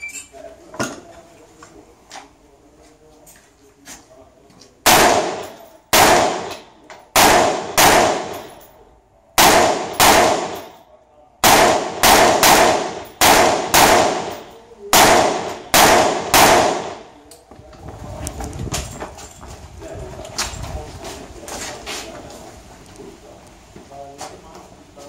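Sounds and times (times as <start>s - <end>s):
rifle shots echoing: 4.8s - 8.6s, 9.4s - 10.8s, 11.4s - 17.2s.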